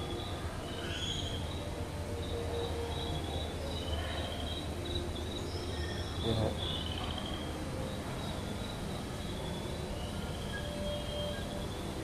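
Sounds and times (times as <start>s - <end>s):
insect-like chirping trills: 0.0s - 12.0s.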